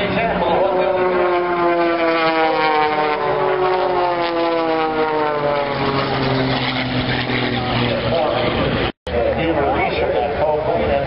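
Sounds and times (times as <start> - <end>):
aircraft passing by: 0.0 - 11.0.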